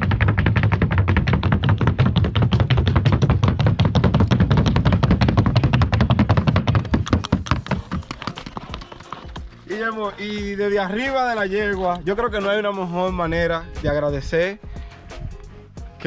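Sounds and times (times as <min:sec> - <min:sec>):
hooves striking wooden board: 0:00.0 - 0:09.9.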